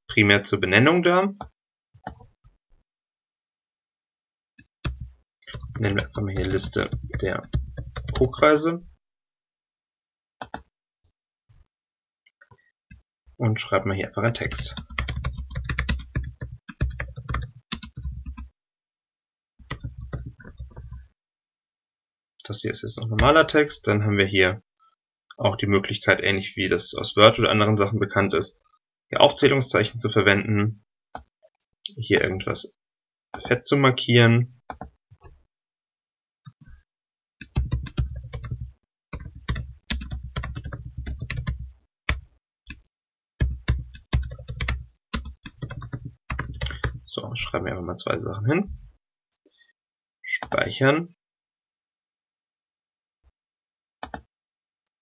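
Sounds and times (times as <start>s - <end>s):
typing on computer keyboard: 4.8s - 8.3s, 14.3s - 18.5s, 19.7s - 20.9s, 37.4s - 42.8s, 43.4s - 47.0s.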